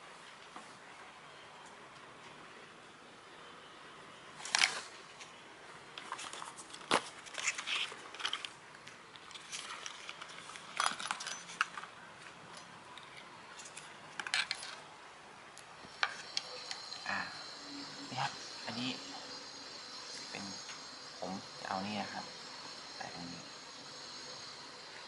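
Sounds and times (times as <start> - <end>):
crinkling plastic: 6.0 - 11.9.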